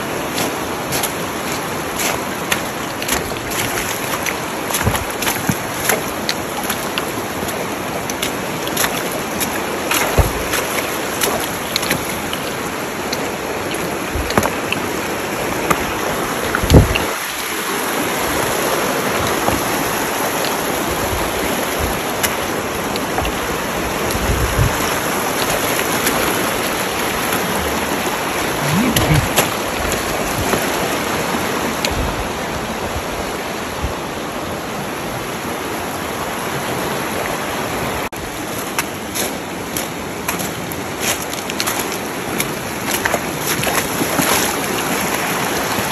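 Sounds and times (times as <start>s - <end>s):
creek rushing over rocks: 0.0s - 45.9s.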